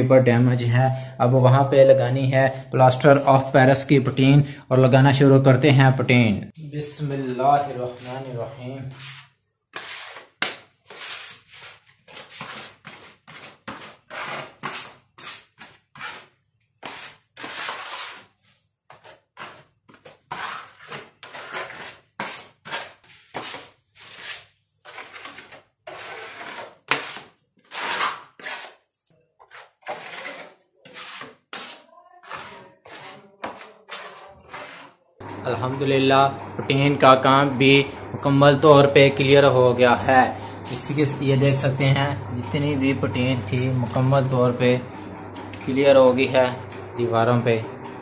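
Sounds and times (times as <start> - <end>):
putty knife scraping: 8.9 - 28.8, 29.4 - 35.0.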